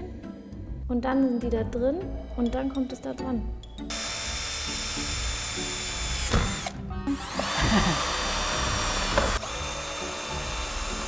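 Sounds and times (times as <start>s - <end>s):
electric drill motor whine: 3.9s - 11.0s.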